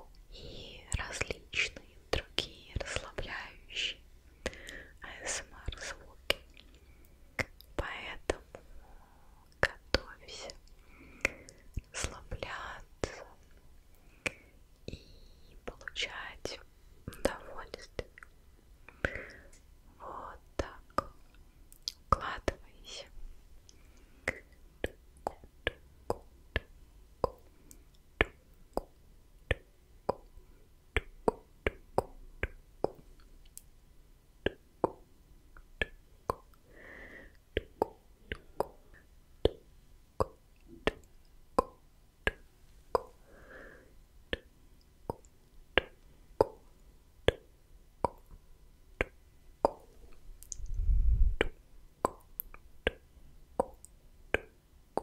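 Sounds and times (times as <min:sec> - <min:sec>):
soft breathy sounds: 0:00.0 - 0:28.9, 0:35.6 - 0:39.2, 0:41.6 - 0:44.5
tongue clicks: 0:07.4 - 0:08.4, 0:20.6 - 0:22.6, 0:23.7 - 0:30.3, 0:31.0 - 0:33.7, 0:34.4 - 0:36.6, 0:37.6 - 0:39.6, 0:40.2 - 0:43.2, 0:45.1 - 0:48.4, 0:49.0 - 0:50.8, 0:51.4 - 0:53.0, 0:53.6 - 0:55.0
wet lip pops: 0:23.7 - 0:27.5, 0:35.6 - 0:36.6, 0:37.6 - 0:38.8, 0:40.2 - 0:43.2, 0:47.3 - 0:48.4, 0:49.0 - 0:50.8, 0:51.4 - 0:53.0, 0:53.6 - 0:55.0
breath blown on microphone: 0:50.6 - 0:51.5.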